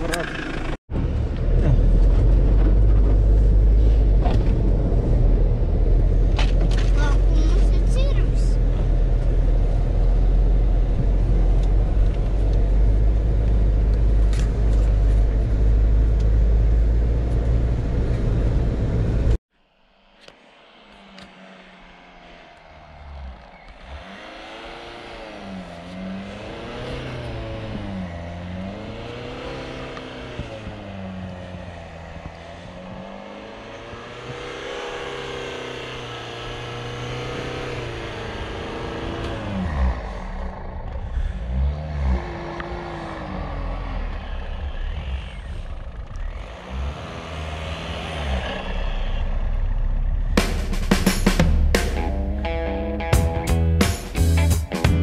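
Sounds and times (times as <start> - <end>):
car engine driving through snow: 20.3 - 51.2.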